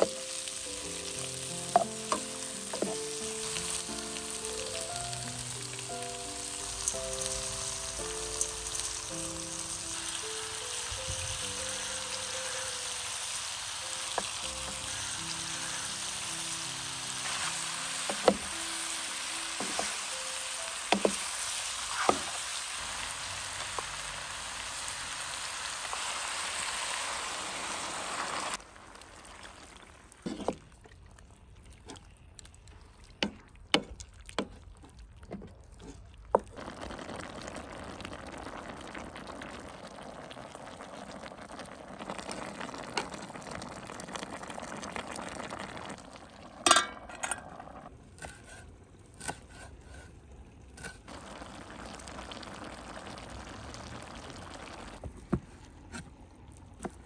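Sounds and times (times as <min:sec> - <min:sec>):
food sizzling in a frying pan: 0:00.0 - 0:30.0, 0:36.5 - 0:47.0, 0:51.1 - 0:55.0
wooden spoon knocking a pan: 0:01.7 - 0:03.0.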